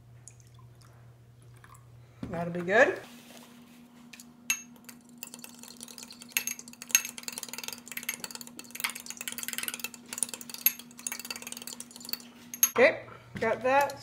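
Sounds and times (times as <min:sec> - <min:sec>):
whisk clinking against bowl: 0:04.5 - 0:12.8, 0:13.5 - 0:14.0.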